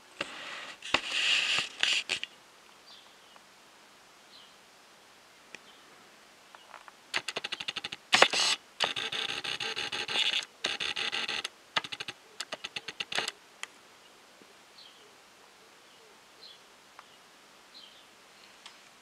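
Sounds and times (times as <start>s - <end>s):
autofocus motor whirring and clicking: 7.2s - 10.5s
faint bird chirps: 11.8s - 13.4s, 14.0s - 18.6s.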